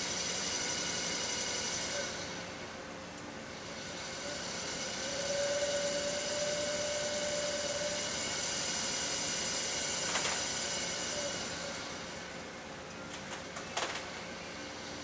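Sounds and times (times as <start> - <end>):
electric motor whining: 4.2 - 12.2.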